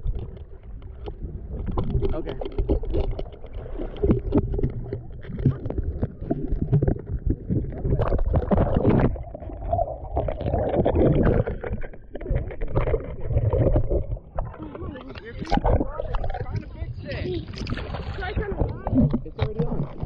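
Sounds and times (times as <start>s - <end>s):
water splashing against camera: 0.0s - 20.0s.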